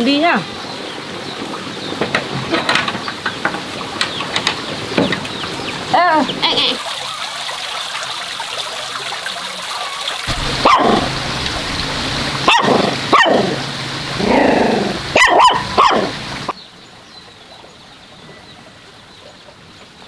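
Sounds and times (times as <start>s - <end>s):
outdoor background: 0.0s - 20.0s
dog barking: 10.6s - 11.1s, 12.4s - 13.6s, 15.1s - 16.2s.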